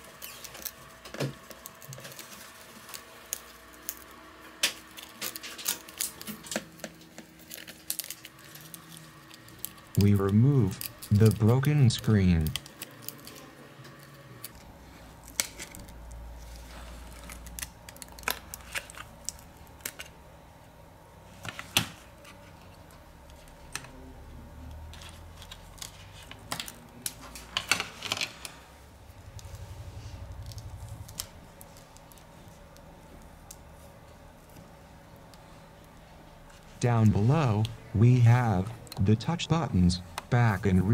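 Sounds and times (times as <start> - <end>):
brief low hum: 28.7 - 33.4.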